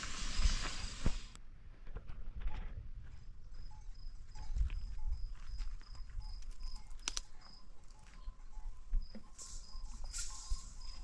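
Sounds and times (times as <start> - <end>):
insect chirping: 3.2 - 11.0.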